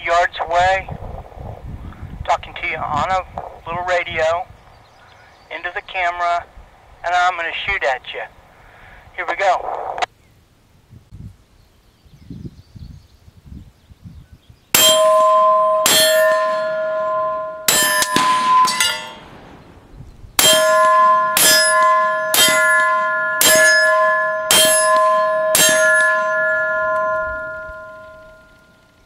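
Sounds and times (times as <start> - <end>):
bullets clanging on steel plates: 14.8 - 19.4, 20.4 - 28.7.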